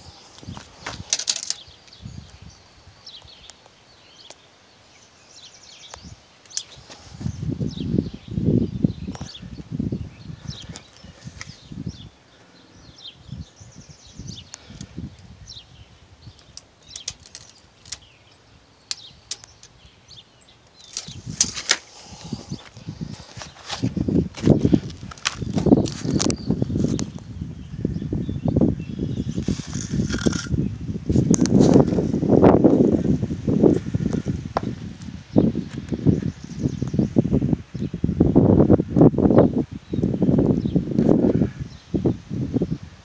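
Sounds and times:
faint birds chirping: 0:00.0 - 0:43.0
handling rustles: 0:00.3 - 0:01.7, 0:16.4 - 0:18.2, 0:20.7 - 0:27.1
sharp clicks: 0:16.3 - 0:18.1, 0:18.8 - 0:19.8
footsteps: 0:20.9 - 0:26.1.

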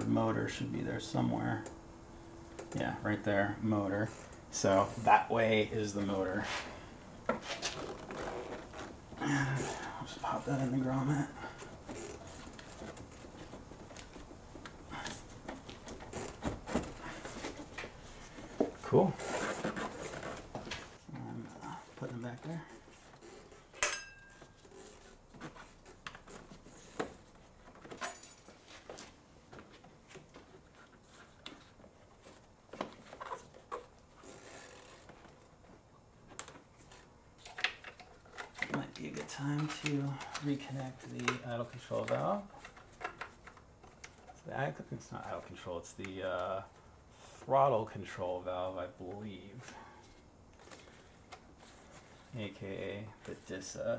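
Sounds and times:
gloved hands handling hoses: 0:02.5 - 0:47.9
plastic valve rubbing in rubber grommet: 0:19.1 - 0:20.6, 0:33.0 - 0:35.6.

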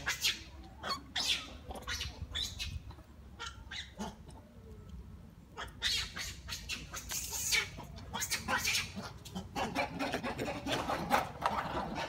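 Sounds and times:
animal squeaks and chirps: 0:00.0 - 0:04.2, 0:05.6 - 0:09.1.

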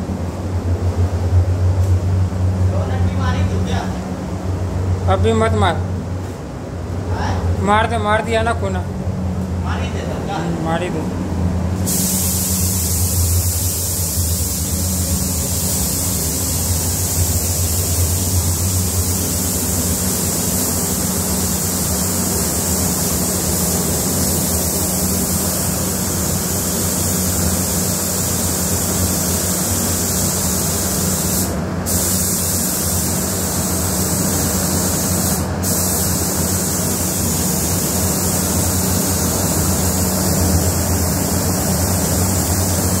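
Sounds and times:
spray gun hissing: 0:11.8 - 0:43.0.

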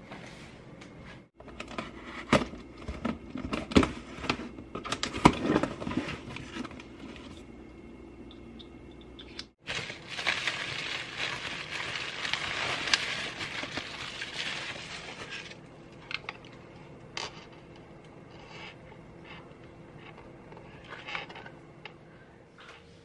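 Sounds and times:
bubble wrap crinkling: 0:09.6 - 0:15.6.

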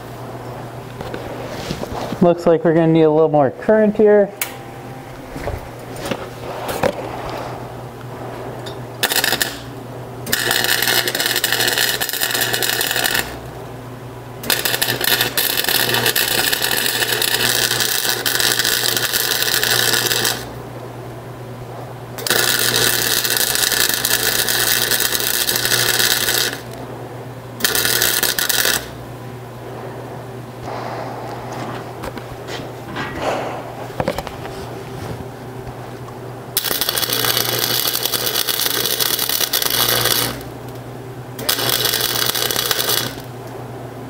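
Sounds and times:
steady low hum: 0:00.0 - 0:44.0
welder crackling: 0:06.0 - 0:13.7, 0:14.4 - 0:20.6, 0:22.2 - 0:26.8, 0:27.6 - 0:29.1, 0:36.5 - 0:43.4.

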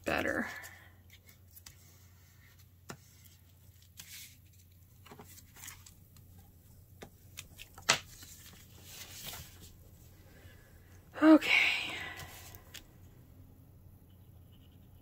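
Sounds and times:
paper rustling on a desk: 0:07.0 - 0:09.8.

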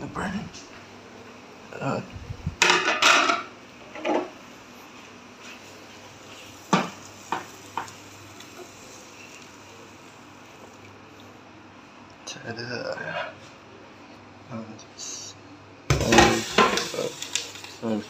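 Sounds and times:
plate and frying pan clattering: 0:02.6 - 0:04.3, 0:15.9 - 0:17.0.

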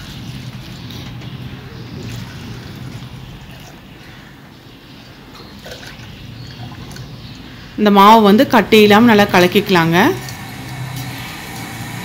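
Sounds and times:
water pouring into a pot: 0:10.1 - 0:12.0.

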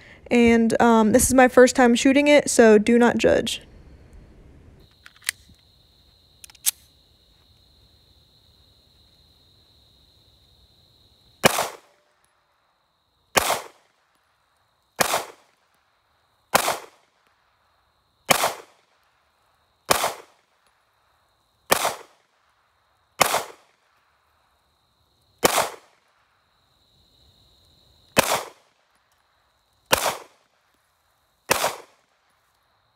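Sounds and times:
pistol shots: 0:11.4 - 0:12.0, 0:13.4 - 0:13.9, 0:15.0 - 0:15.6, 0:16.5 - 0:17.1, 0:18.3 - 0:18.9, 0:19.9 - 0:20.5, 0:21.7 - 0:22.3, 0:23.2 - 0:23.8, 0:25.4 - 0:26.0, 0:28.2 - 0:28.7, 0:29.9 - 0:30.5, 0:31.5 - 0:32.1.

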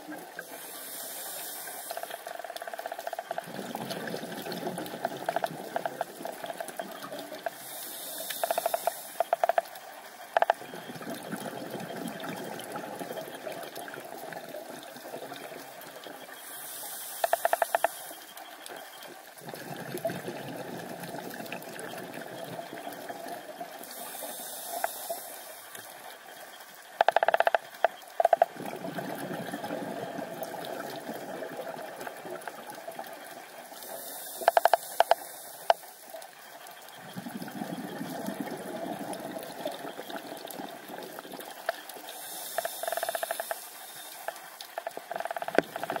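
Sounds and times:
diver's regulator breathing: 0:00.4 - 0:02.3, 0:07.5 - 0:09.4, 0:23.8 - 0:25.6, 0:33.8 - 0:35.8, 0:42.1 - 0:44.2
crayfish clicking rattles: 0:27.0 - 0:28.5.

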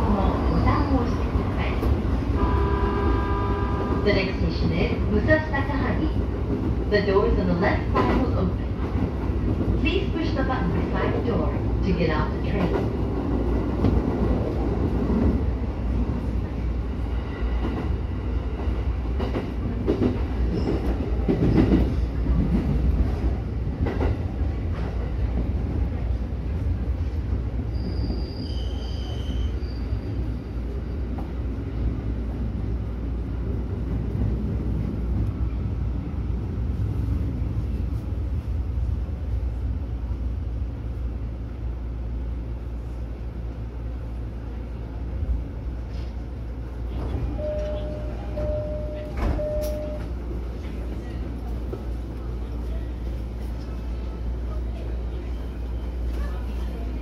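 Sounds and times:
train wheels rumbling: 0:00.0 - 0:57.0
high squeal: 0:27.7 - 0:30.2.

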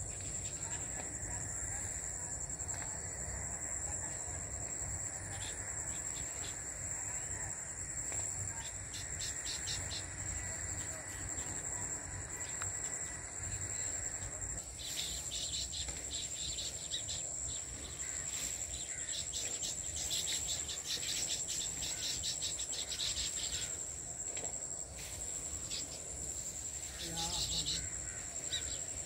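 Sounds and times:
insects trilling: 0:00.0 - 0:29.0.

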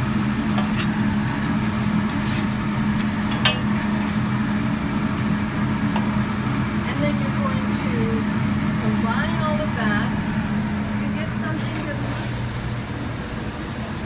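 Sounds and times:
food sizzling on griddle: 0:00.0 - 0:10.6
low mechanical hum: 0:00.0 - 0:14.0.

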